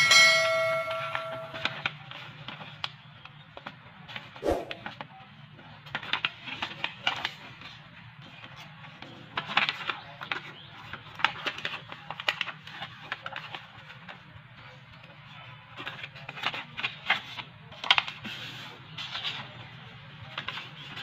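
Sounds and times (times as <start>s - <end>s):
paper folding and crinkling: 15.5s - 21.0s.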